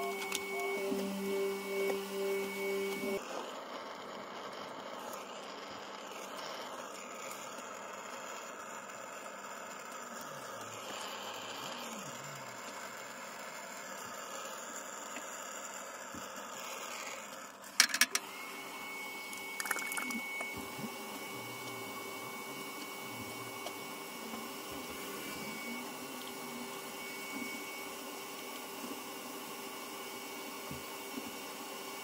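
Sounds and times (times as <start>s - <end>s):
high whine: 0.0s - 3.2s
small motor humming: 0.0s - 32.0s.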